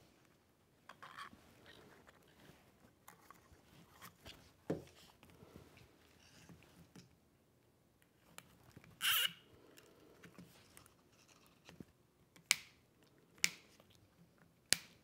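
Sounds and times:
zip tie ratcheting: 0:09.0 - 0:09.4.

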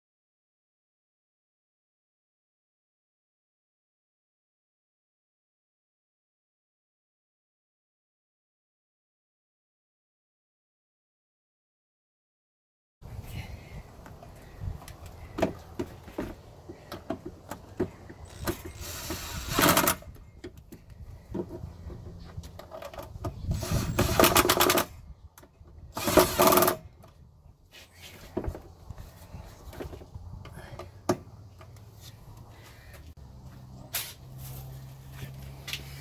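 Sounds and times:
impact driver running: 0:18.3 - 0:20.2, 0:26.0 - 0:26.8.

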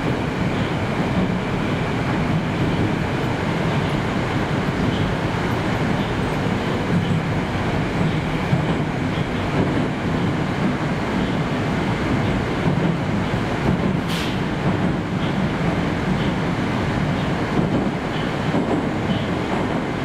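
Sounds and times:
metro train wheels rumbling: 0:00.0 - 0:20.0
brief hiss: 0:14.1 - 0:14.5.

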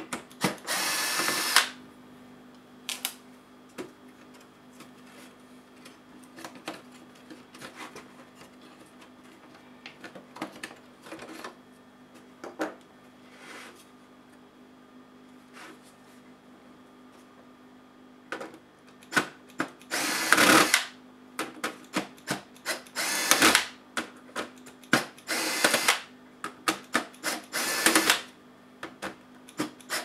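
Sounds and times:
electric screwdriver running: 0:00.6 - 0:01.8, 0:19.9 - 0:20.9, 0:22.7 - 0:23.7, 0:25.2 - 0:26.1, 0:27.2 - 0:28.3, 0:29.8 - 0:30.0.

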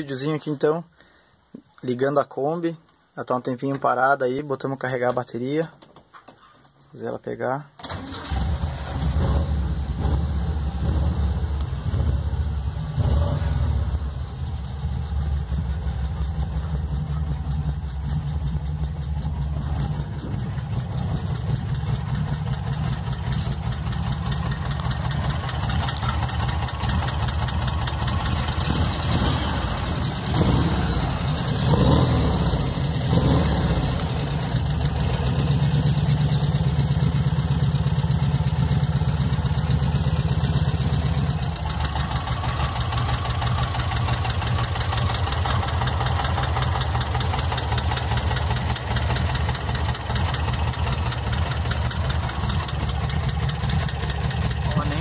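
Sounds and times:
van engine idling: 0:13.8 - 0:55.0.

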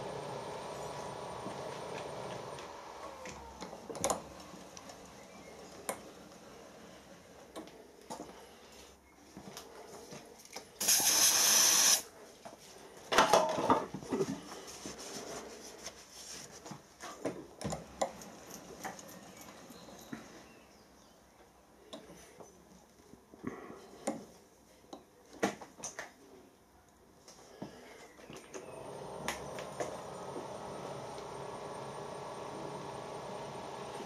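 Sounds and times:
machine spindle running down: 0:00.0 - 0:04.6, 0:28.6 - 0:34.0
hiss: 0:10.8 - 0:12.0.

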